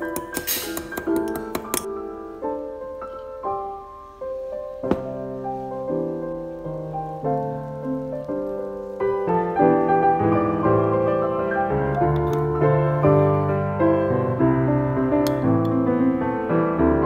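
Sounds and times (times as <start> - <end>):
solo piano music: 0.0 - 17.0.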